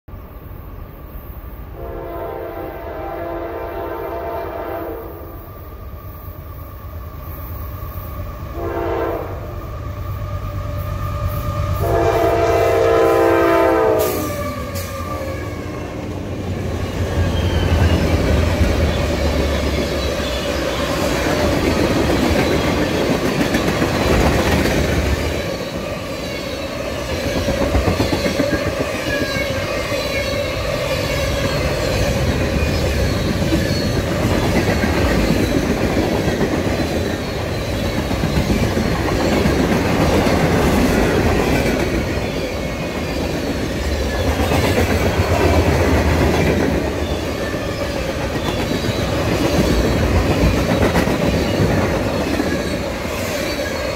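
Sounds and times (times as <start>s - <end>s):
train wheels on rails: 0.1s - 53.9s
locomotive horn blasts: 1.8s - 5.4s, 8.5s - 9.6s, 11.3s - 14.8s.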